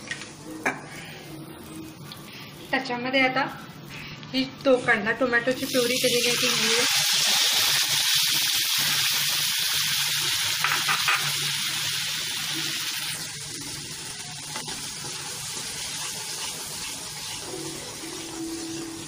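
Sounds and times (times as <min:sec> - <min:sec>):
puree sizzling in hot oil: 0:05.5 - 0:19.0.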